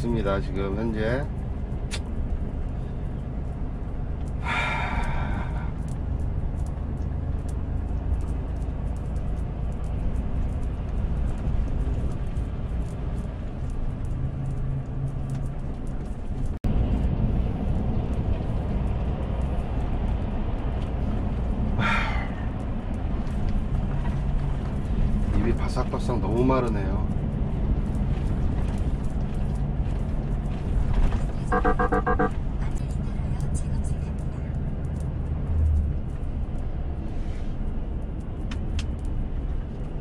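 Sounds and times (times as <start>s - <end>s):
road noise: 0.0s - 40.0s
truck diesel engine drone: 31.2s - 33.0s.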